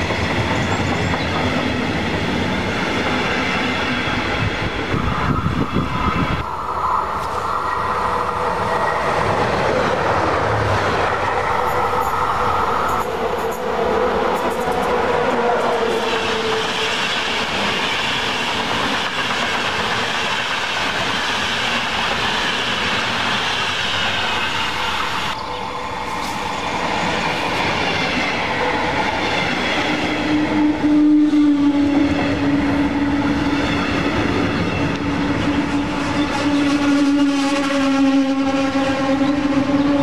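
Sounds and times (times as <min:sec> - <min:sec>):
train wheels running over rails: 0:00.0 - 0:06.5, 0:07.1 - 0:30.8.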